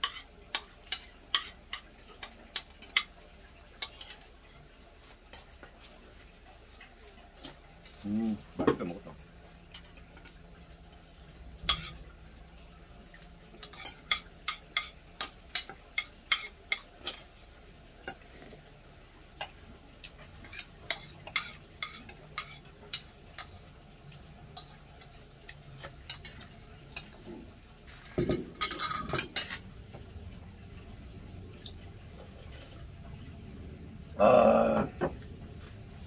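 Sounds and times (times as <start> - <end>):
utensils clinking on metal bowls: 27.9 - 29.7.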